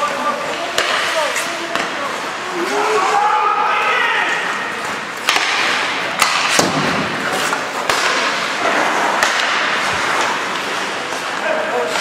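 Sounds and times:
skates scraping on ice: 0.0s - 12.0s
sticks and puck knocking: 0.6s - 2.0s, 5.2s - 10.7s.

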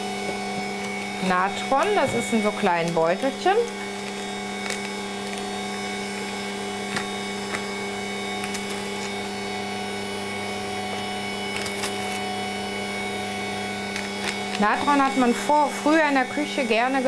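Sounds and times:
stand mixer motor humming: 0.0s - 17.0s
paper sachet rustling: 3.7s - 5.6s.

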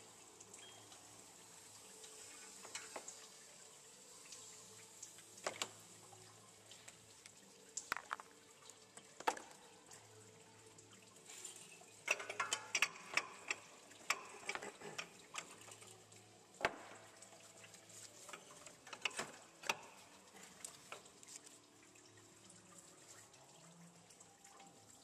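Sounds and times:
metal clicks and knocks: 12.1s - 15.5s.

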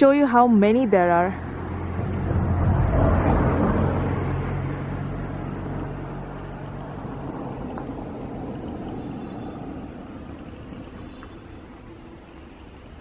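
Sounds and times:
car engine hum: 0.0s - 13.0s
road noise inside car: 0.0s - 13.0s.

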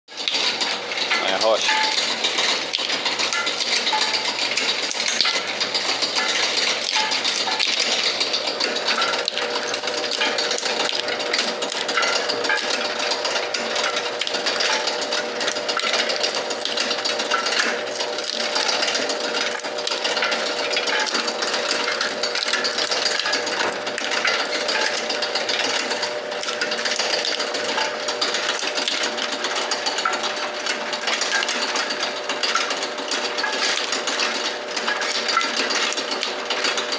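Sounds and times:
machine hum: 0.2s - 36.9s.

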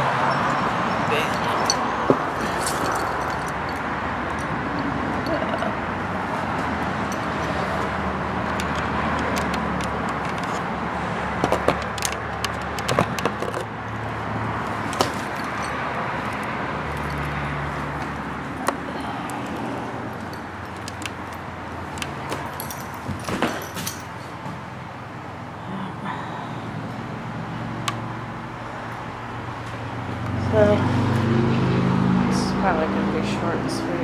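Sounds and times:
road traffic rumble: 0.0s - 34.0s
sharp clicks and rattles: 1.6s - 5.8s, 6.6s - 10.8s, 11.4s - 17.4s, 18.0s - 24.1s.

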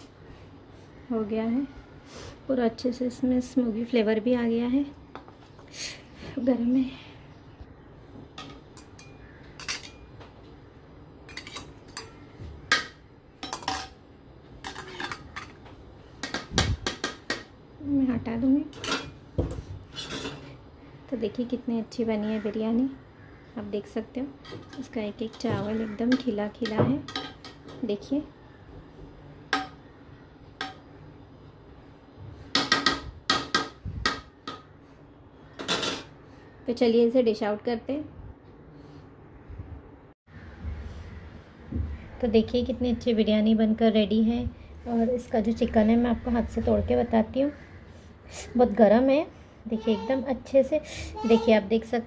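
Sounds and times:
spoon clinking against metal pot: 8.8s - 10.1s.

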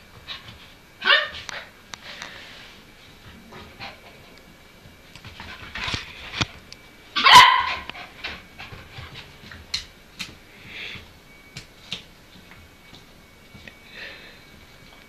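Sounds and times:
puppy barking: 1.0s - 1.7s, 7.2s - 8.0s.

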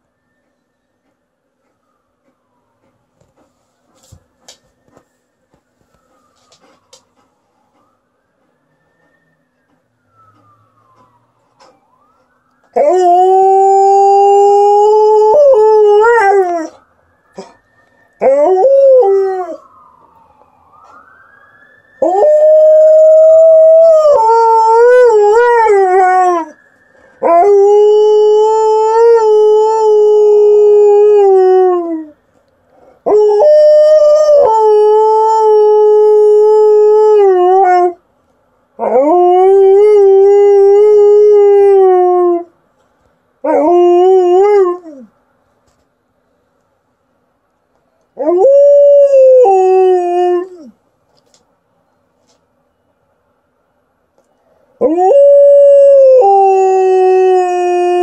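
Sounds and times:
dog howling: 12.8s - 16.8s, 22.0s - 26.6s, 48.2s - 50.7s, 54.8s - 58.0s.

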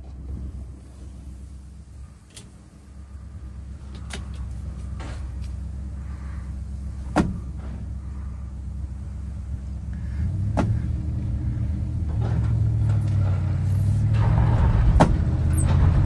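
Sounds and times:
vehicle rumble from inside cab: 0.0s - 16.0s
loud clunk: 7.1s - 7.9s, 14.0s - 16.0s.

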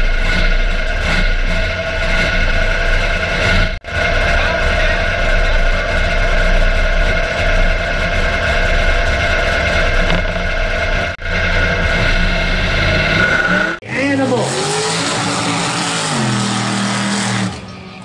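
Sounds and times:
truck engine idling: 0.0s - 13.8s.

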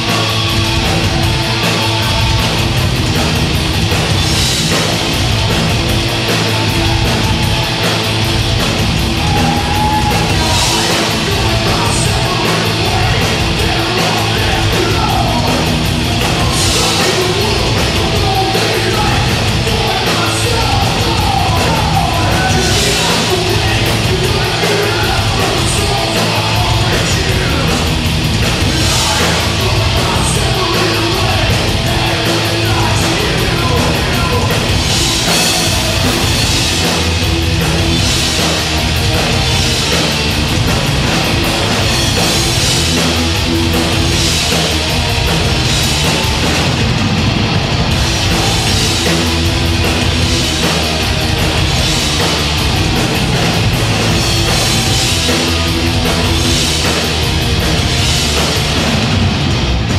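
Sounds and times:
distorted electric guitars: 0.0s - 59.9s
drums: 0.0s - 59.9s
shouted vocals: 6.2s - 37.1s.

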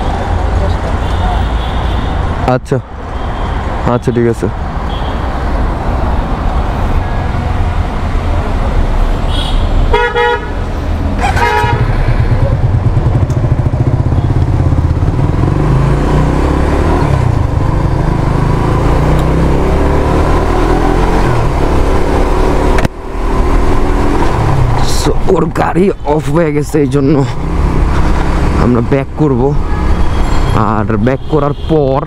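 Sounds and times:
road traffic: 0.0s - 32.0s
vehicle horn toots: 9.3s - 10.6s, 11.2s - 12.0s
motorcycle engine running: 11.3s - 20.3s.

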